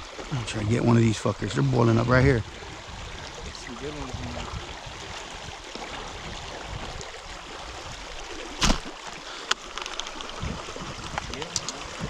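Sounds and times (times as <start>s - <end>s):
shallow river water rushing: 0.0s - 12.0s
sharp thump: 8.6s - 8.9s.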